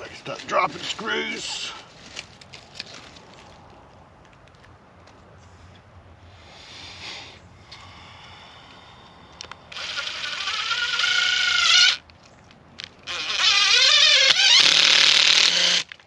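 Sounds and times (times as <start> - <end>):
cordless drill driving screws: 9.7 - 12.0, 13.0 - 16.0.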